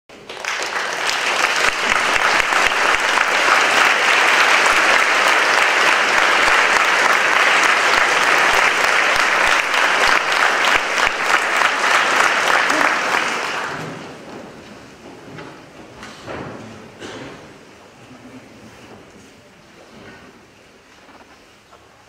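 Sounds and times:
audience applauding: 0:00.1 - 0:14.2.

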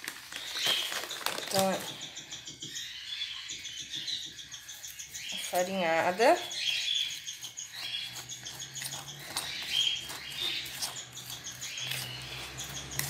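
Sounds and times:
small birds chirping: 0:00.0 - 0:13.0
metal utensil scraping a bowl: 0:04.6 - 0:13.0.

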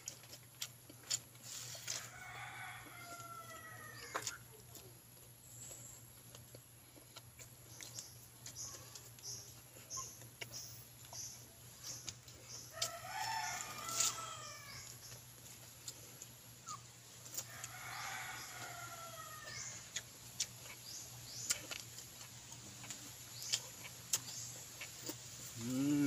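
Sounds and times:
rooster crowing: 0:01.9 - 0:04.3, 0:12.7 - 0:15.0, 0:17.5 - 0:19.8.

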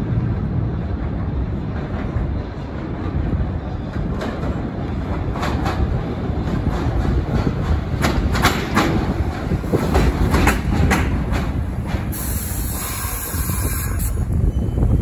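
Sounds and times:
train rumble: 0:00.0 - 0:15.0
train wheels clacking on rails: 0:03.9 - 0:14.6
air brake hiss: 0:12.1 - 0:14.3.

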